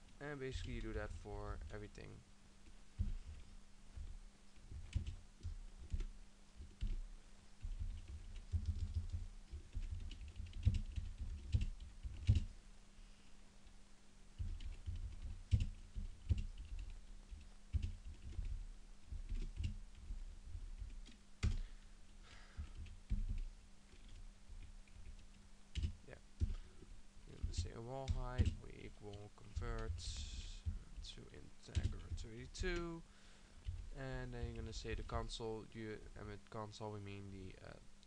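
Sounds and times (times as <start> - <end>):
steady low hum: 0.0 - 38.0
typing on computer keyboard: 4.0 - 7.0, 7.6 - 12.6, 14.4 - 21.6, 22.6 - 26.6, 31.7 - 32.3.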